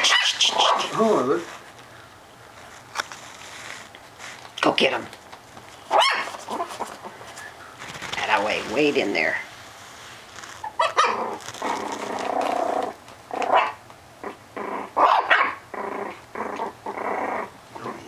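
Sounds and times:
puppies growling and barking: 0.0s - 1.6s, 5.8s - 8.3s, 10.5s - 18.0s.

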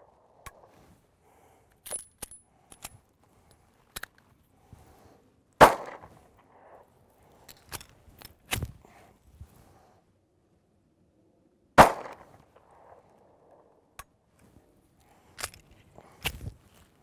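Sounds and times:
pistol shot: 5.6s - 6.1s, 11.8s - 12.9s.

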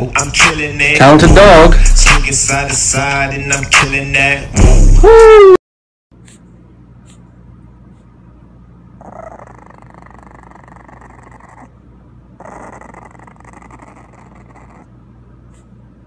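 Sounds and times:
puppy growling: 9.0s - 15.8s.

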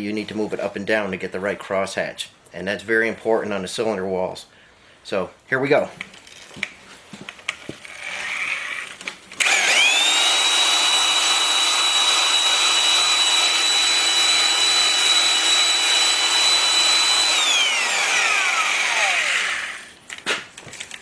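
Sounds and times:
electric drill whining: 7.9s - 20.0s.

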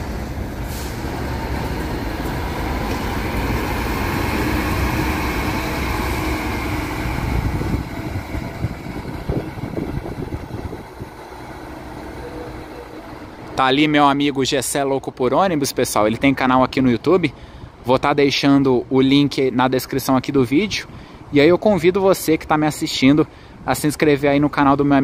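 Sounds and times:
coach diesel engine passing: 0.0s - 16.4s.

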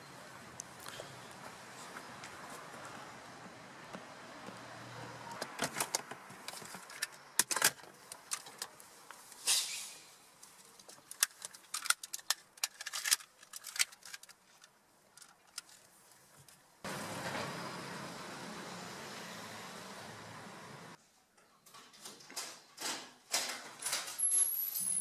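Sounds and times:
sharp clicks and light rattles: 10.4s - 15.9s.

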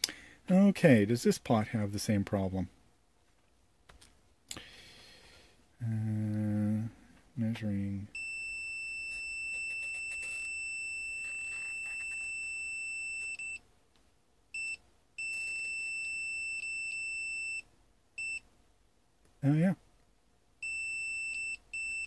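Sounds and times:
multimeter continuity beeps: 8.1s - 13.6s, 14.6s - 18.4s, 20.6s - 22.0s.

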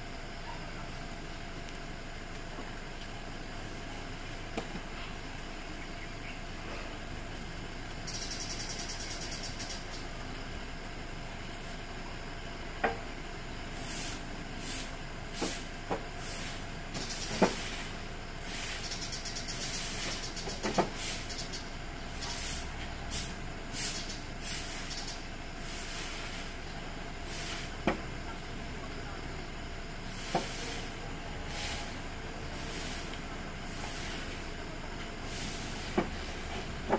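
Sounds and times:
broom sweeping leaves on concrete: 13.7s - 19.0s, 19.6s - 21.4s, 22.1s - 25.0s, 25.6s - 27.9s, 30.0s - 34.5s, 35.2s - 36.7s.

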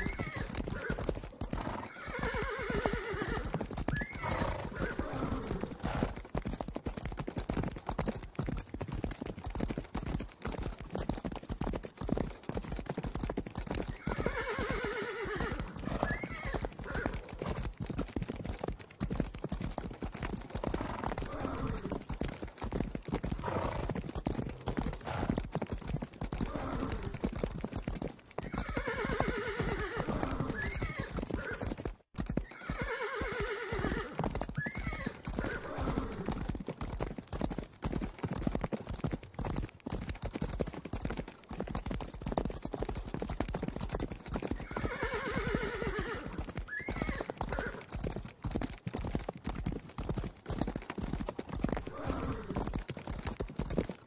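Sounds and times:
horse whinnying: 0.0s - 6.2s, 13.9s - 17.6s, 20.8s - 22.0s, 26.4s - 27.2s, 28.4s - 31.8s, 32.4s - 36.4s, 44.6s - 47.9s, 51.8s - 52.6s
horses galloping: 0.0s - 54.0s.

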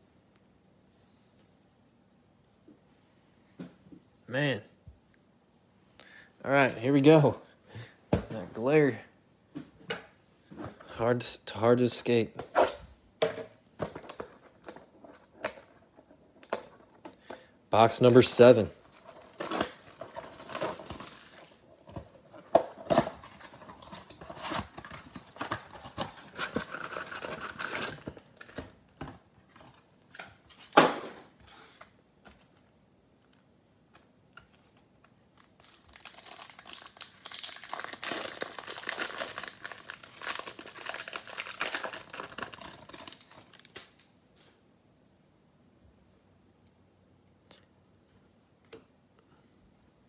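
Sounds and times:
plastic shrink wrap crinkling: 17.9s - 28.6s, 35.3s - 44.1s
card pack wrappers tearing: 18.0s - 21.6s, 35.4s - 44.1s.

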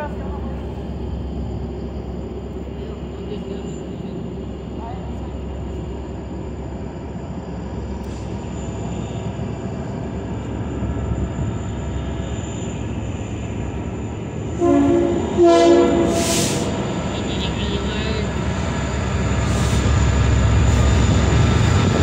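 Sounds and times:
diesel locomotive engine rumble: 0.0s - 22.0s
locomotive air horn blasts: 14.6s - 16.8s.

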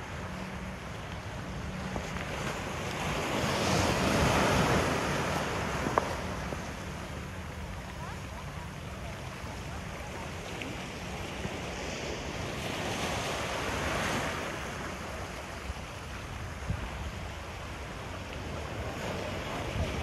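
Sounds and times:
small waves breaking on rocks: 0.0s - 20.0s
wind buffeting microphone: 15.5s - 20.0s.

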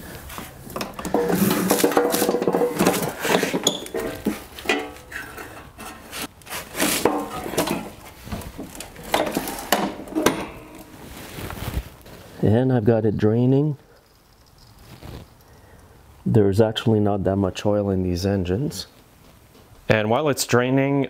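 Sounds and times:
lawn mower knocking and rattling: 0.8s - 5.0s
metal pan set down clattering: 0.8s - 5.1s.

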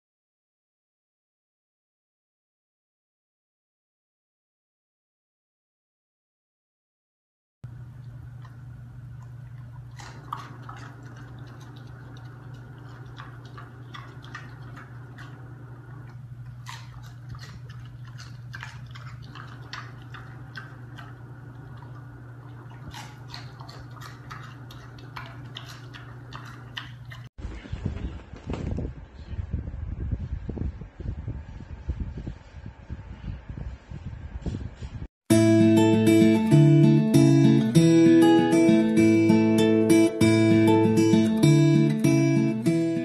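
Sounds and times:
steady low hum: 7.7s - 43.0s
pig chewing crunchy food: 8.1s - 27.3s.

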